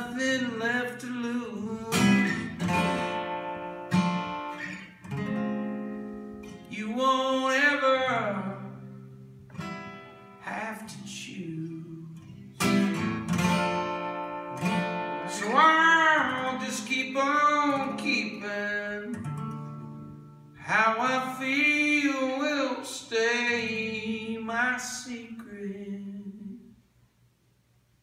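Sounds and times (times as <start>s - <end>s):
man singing: 0.0s - 2.6s, 6.6s - 8.8s, 10.4s - 12.5s, 15.2s - 19.3s, 20.6s - 26.8s
acoustic guitar strumming: 0.0s - 26.6s.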